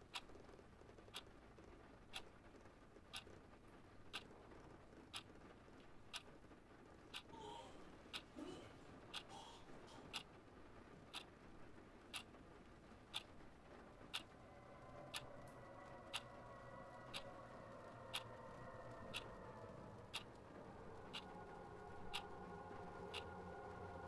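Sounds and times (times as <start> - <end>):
faint hum with held tones: 0.0 - 24.0
clock ticking: 7.1 - 7.3, 8.1 - 8.3, 11.1 - 11.4, 12.1 - 12.3, 13.1 - 13.4, 14.1 - 14.4, 16.1 - 16.3, 17.1 - 17.3, 18.1 - 18.4, 19.1 - 19.3, 20.1 - 20.4, 21.0 - 21.4, 22.1 - 22.4, 23.1 - 23.4.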